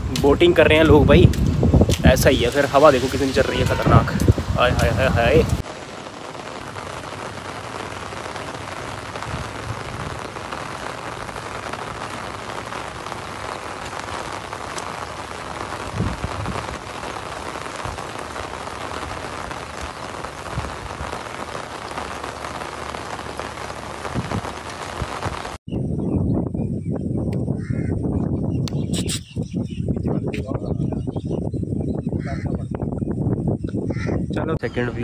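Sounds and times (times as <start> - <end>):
heavy rain on floodwater: 0.0 - 25.6.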